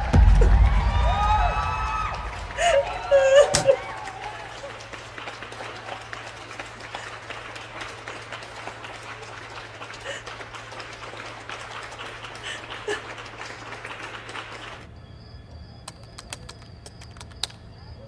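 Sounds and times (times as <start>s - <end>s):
people clapping: 0.0s - 14.9s, 15.9s - 17.7s
steady low hum: 0.0s - 18.0s
indistinct crowd chatter: 2.6s - 14.8s.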